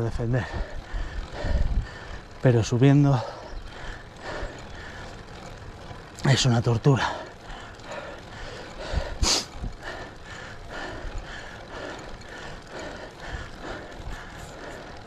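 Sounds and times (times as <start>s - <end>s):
wind noise on microphone: 0.0s - 2.3s, 8.8s - 10.1s
regular pulsing: 0.0s - 15.0s.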